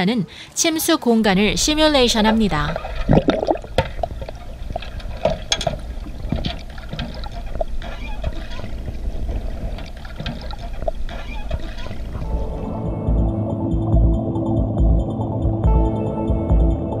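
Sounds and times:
underwater low rumble: 1.3s - 15.8s
bubbling pops and clicks: 2.4s - 8.4s, 9.5s - 12.2s.

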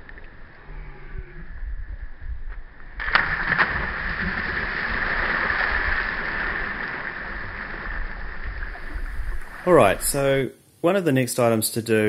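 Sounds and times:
wind rumble on microphone: 0.0s - 3.0s, 8.0s - 10.2s
people splashing into water: 3.0s - 10.3s
churned water rushing: 3.1s - 10.4s.

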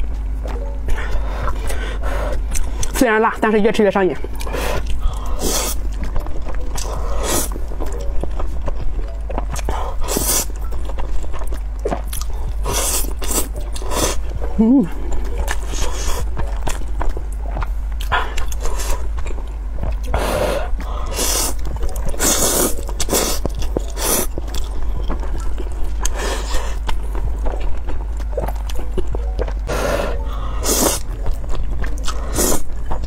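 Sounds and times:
person chewing: 0.0s - 3.0s, 4.2s - 33.0s
person slurping noodles: 29.7s - 31.0s.

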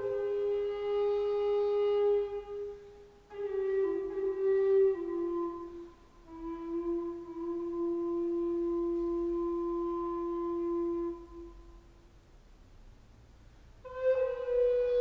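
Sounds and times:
breath: 13.4s - 13.8s.

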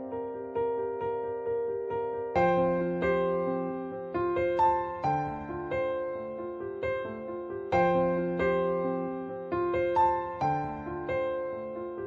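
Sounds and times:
piano-like keyboard chords: 0.0s - 12.0s.

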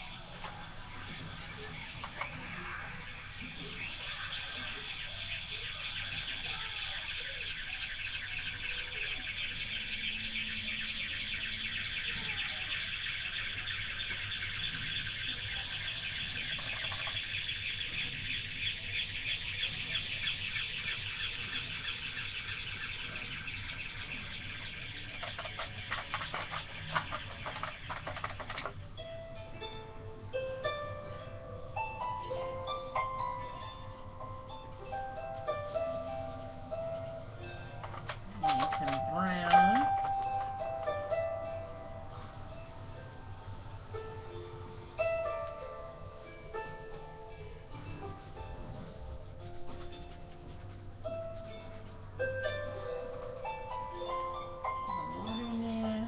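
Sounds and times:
birds chirping: 0.0s - 28.8s, 35.5s - 42.7s.

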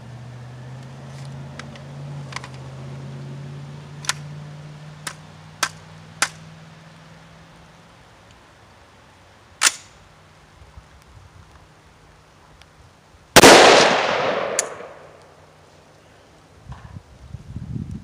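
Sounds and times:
gun action metallic clicks: 9.6s - 9.9s, 13.4s - 15.3s.

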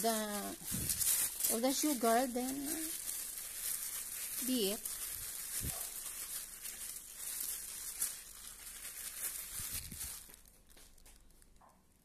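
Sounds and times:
squishing of moist mixture: 0.0s - 11.6s
plastic glove rustling: 0.0s - 12.0s.

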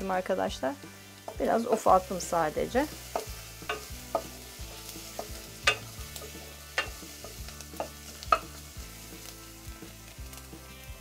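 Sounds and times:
light sizzle: 0.0s - 11.0s
wooden spoon stirring onions: 1.0s - 10.4s
spoon knocking against pot: 5.2s - 5.9s.

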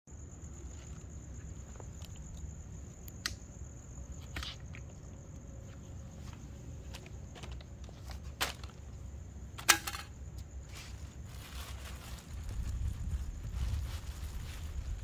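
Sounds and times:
cricket trilling: 0.1s - 15.0s.

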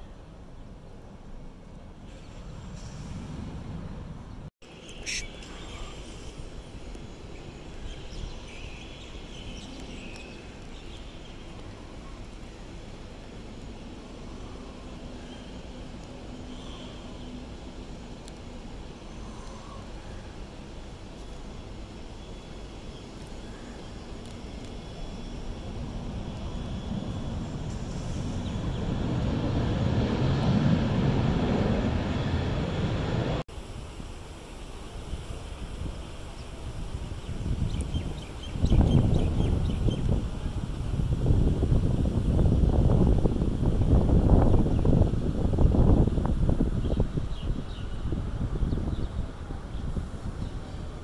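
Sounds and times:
wind: 0.0s - 51.0s
faint bird chirps: 4.8s - 6.2s
distant aircraft rumble: 17.8s - 33.4s
jet engines roaring: 24.3s - 33.5s.

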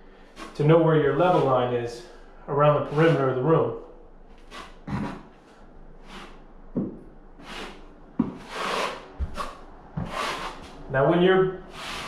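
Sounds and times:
trowel scraping adhesive on wall: 8.4s - 10.7s.

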